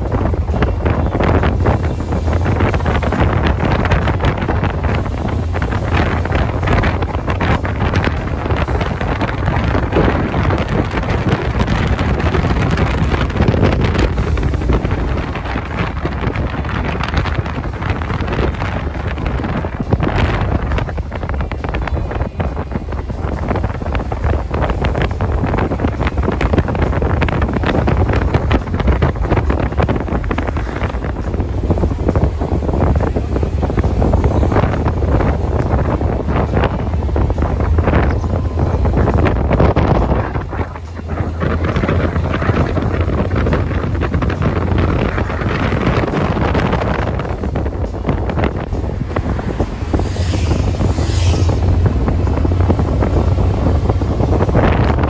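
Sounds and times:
road noise: 0:00.0 - 0:55.0
wind buffeting microphone: 0:00.0 - 0:55.0.

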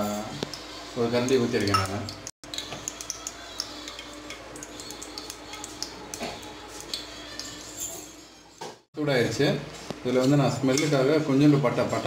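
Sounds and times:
oil ticking and crackling: 0:00.4 - 0:07.6.

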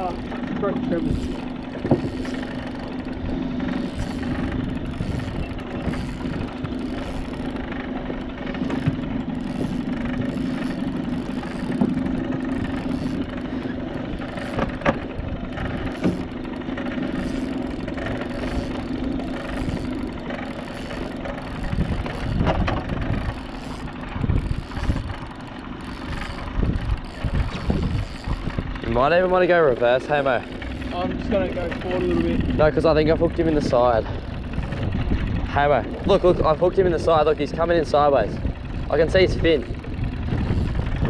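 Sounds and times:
boat motor humming: 0:00.0 - 0:41.0.

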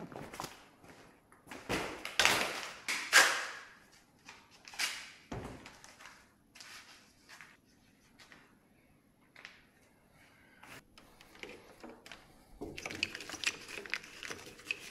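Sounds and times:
knocks and scraping clatters: 0:10.7 - 0:14.9.

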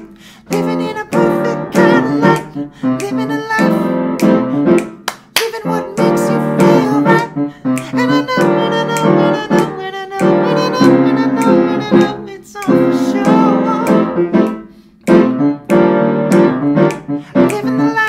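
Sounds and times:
keyboard chord stabs: 0:06.0 - 0:18.0.

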